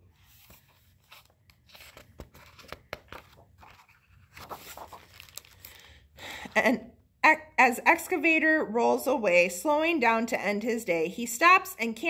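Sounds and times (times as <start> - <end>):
paper pages rustling and turning: 0.0 - 5.9.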